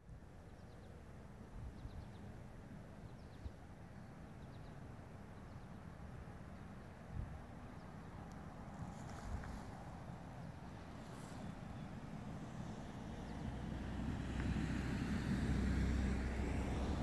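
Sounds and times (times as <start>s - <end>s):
wind rumble on microphone: 1.5s - 2.3s, 7.0s - 7.6s, 8.4s - 17.0s.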